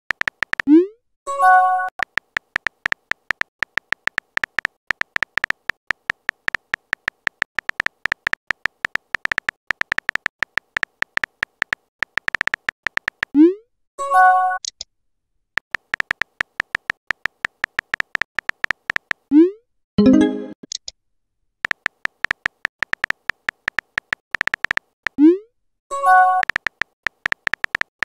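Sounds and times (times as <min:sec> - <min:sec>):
typing clicks: 0:00.1 - 0:00.7, 0:01.7 - 0:13.4, 0:15.6 - 0:19.3, 0:21.6 - 0:25.2, 0:26.0 - 0:28.0.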